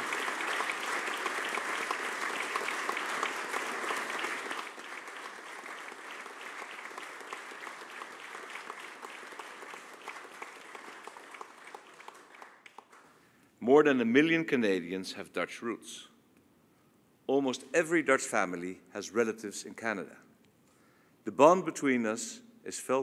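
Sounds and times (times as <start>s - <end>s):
crowd applauding: 0.0s - 13.1s.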